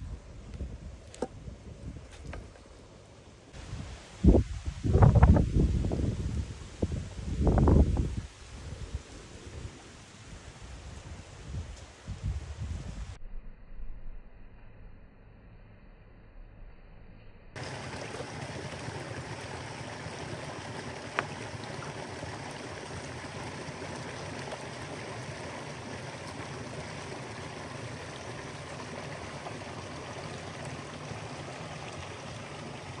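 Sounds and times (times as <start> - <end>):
flowing water: 17.6 - 33.0.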